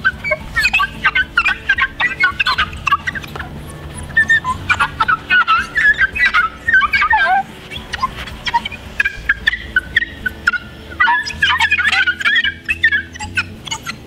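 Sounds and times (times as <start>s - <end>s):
wet sponge squeaking on glass: 0.0s - 14.0s.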